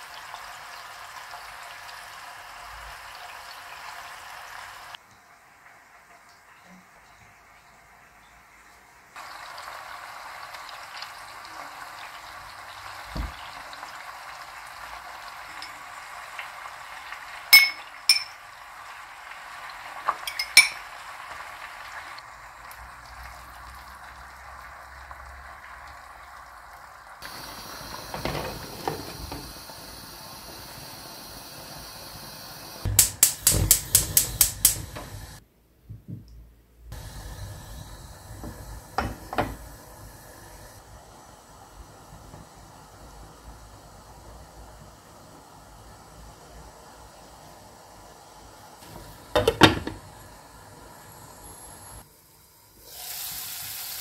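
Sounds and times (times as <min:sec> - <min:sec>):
onions sizzling in a pan: 0:00.0 - 0:35.4, 0:36.9 - 0:54.0
hissing pan of rice: 0:09.2 - 0:26.6, 0:27.2 - 0:35.4, 0:36.9 - 0:54.0
metal utensil clinking on pan: 0:17.6 - 0:18.4, 0:20.2 - 0:20.8.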